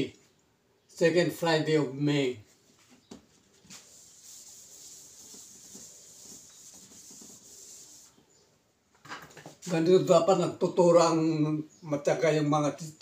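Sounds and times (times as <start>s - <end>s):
eraser scrubbing a whiteboard: 3.5s - 8.2s.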